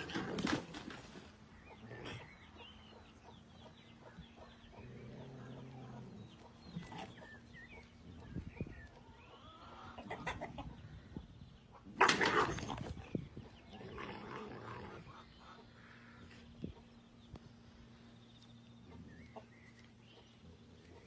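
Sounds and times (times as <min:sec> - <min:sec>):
rooster clucking: 0:08.6 - 0:10.9.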